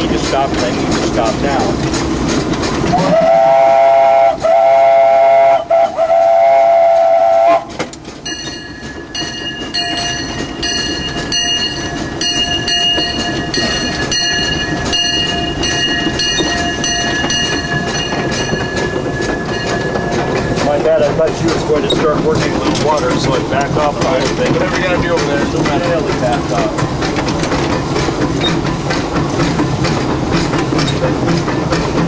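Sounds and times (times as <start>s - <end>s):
train wheels rumbling and clicking: 0.0s - 32.0s
steam locomotive whistle: 2.8s - 7.9s.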